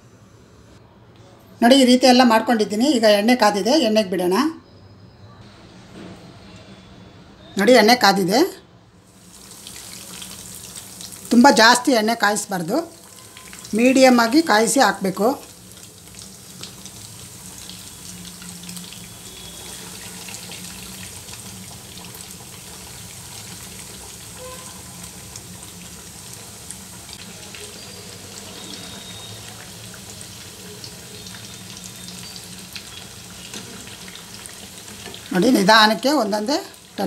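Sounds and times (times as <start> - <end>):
cutlets deep-frying in oil: 9.0 - 37.0.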